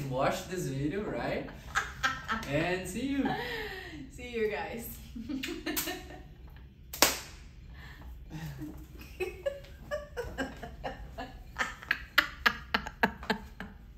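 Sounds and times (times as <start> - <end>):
sharp smack: 6.9 - 7.4.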